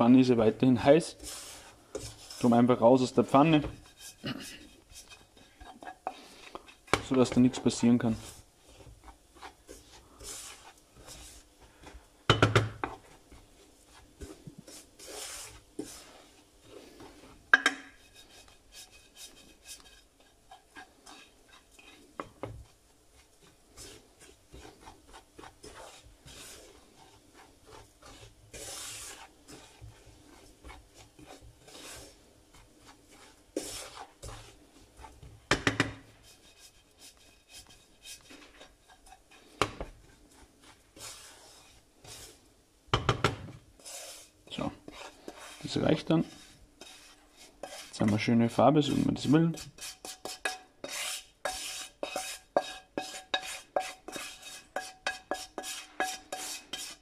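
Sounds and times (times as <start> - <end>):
wooden spoon scraping breadcrumbs: 0.0 - 57.0
spoon knocking on pan: 12.3 - 13.0, 17.5 - 18.0, 35.5 - 36.0, 42.9 - 43.5.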